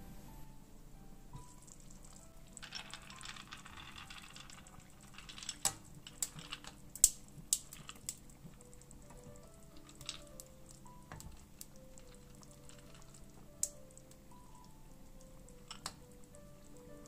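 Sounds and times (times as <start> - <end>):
soft hiss of simmering stew: 0.0 - 17.0
ice cubes clinking: 1.4 - 7.0, 9.4 - 10.5, 12.0 - 13.3.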